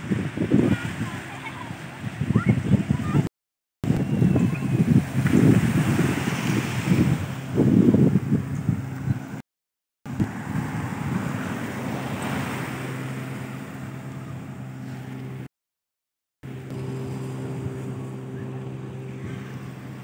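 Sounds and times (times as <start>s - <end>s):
surf-like noise: 0.0s - 3.3s, 3.9s - 8.4s, 10.1s - 15.5s, 16.4s - 20.0s
wind buffeting microphone: 0.0s - 9.4s, 10.1s - 14.6s
low engine hum: 3.9s - 9.4s, 10.1s - 15.5s, 16.4s - 20.0s.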